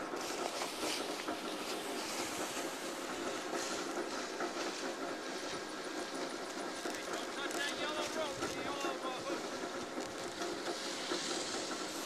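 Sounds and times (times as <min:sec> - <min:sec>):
snowboard scraping over snow: 0:10.1 - 0:12.0.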